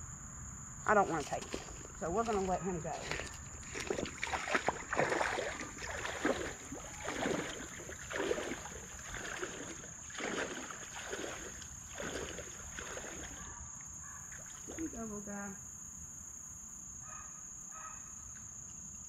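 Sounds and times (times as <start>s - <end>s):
boots splashing through creek: 1.0s - 13.5s, 14.3s - 15.0s.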